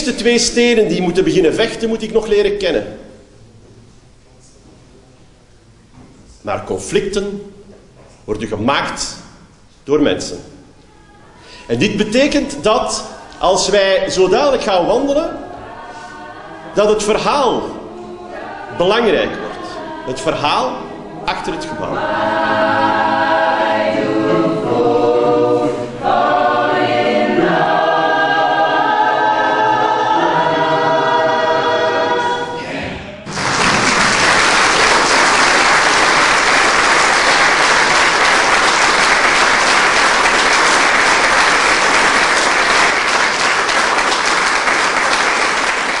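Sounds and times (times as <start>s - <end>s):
mixed choir singing: 13.0s - 46.0s
audience applause: 33.3s - 46.0s.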